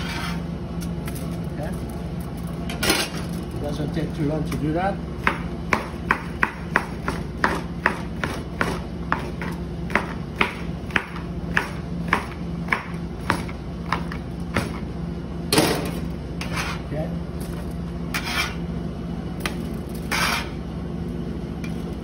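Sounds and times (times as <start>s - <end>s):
knife chopping on cutting board: 5.2s - 14.8s.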